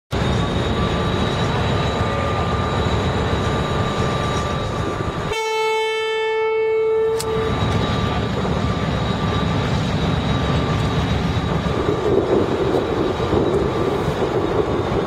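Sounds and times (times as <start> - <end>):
diesel locomotive rumbling: 0.1 - 15.0
train horn held note: 5.3 - 7.5.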